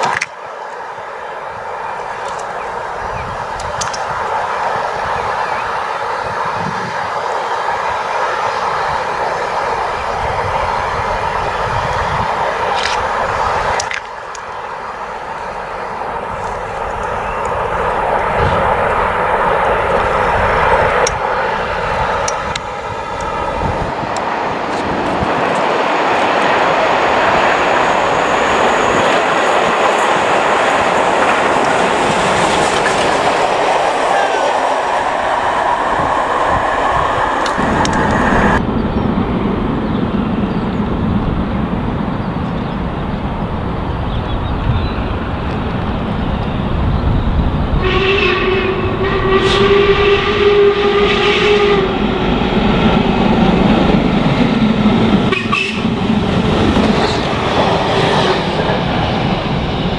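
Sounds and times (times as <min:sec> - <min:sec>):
steam locomotive rushing: 0:00.0 - 0:59.9
train rumble: 0:00.0 - 0:59.9
train horn: 0:47.7 - 0:52.3, 0:55.2 - 0:56.1.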